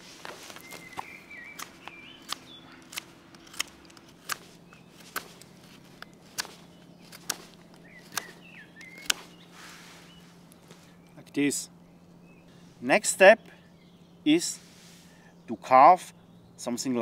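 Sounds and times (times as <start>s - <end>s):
knife slicing wood shavings: 0.0s - 10.9s.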